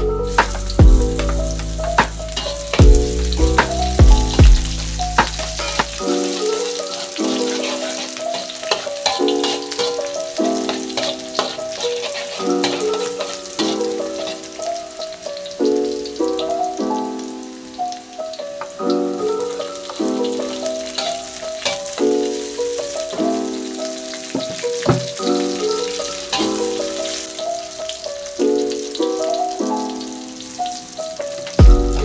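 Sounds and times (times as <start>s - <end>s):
background music: 0.0s - 32.0s
shallots sizzling in hot oil: 0.1s - 32.0s
metal spatula stirring in wok: 1.2s - 2.8s, 5.0s - 14.7s, 20.9s - 22.1s.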